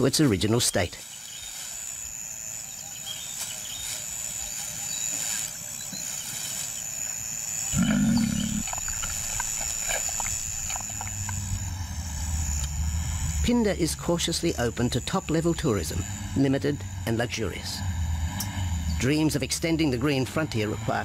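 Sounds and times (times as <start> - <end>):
insects buzzing: 0.0 - 21.0
lion growling: 7.7 - 9.1.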